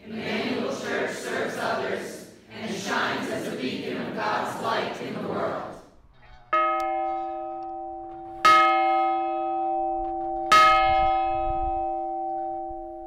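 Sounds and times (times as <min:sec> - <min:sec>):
large bell ringing: 0:06.4 - 0:13.0.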